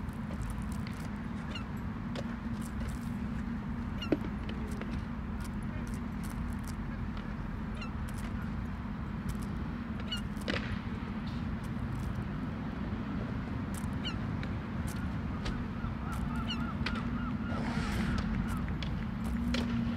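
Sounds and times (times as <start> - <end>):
steady low rumble: 0.0 - 19.9.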